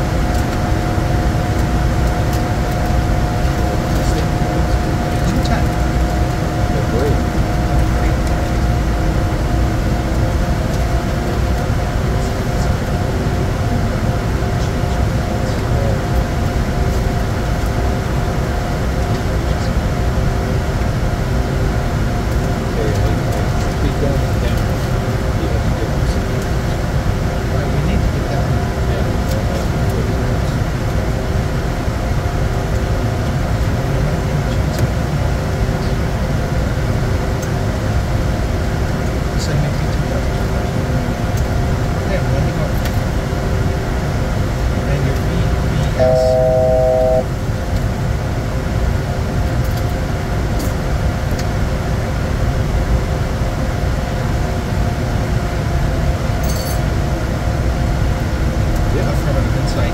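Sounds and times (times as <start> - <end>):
jet cockpit airflow and engine noise: 0.0 - 59.9
faint even hum: 45.0 - 47.4.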